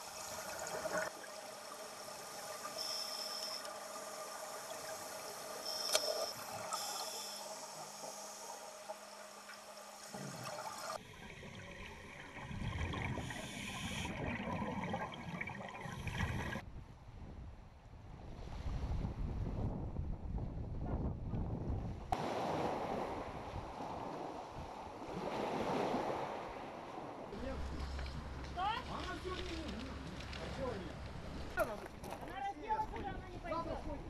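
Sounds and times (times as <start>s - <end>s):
underwater bubbling: 0.0s - 16.6s
wind: 0.0s - 34.0s
waves on shore: 22.1s - 33.9s.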